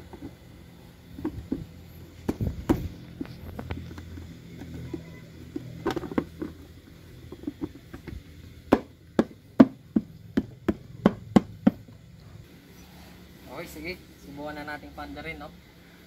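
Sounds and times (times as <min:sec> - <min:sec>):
tools knocking on hard parts: 0:07.3 - 0:12.0.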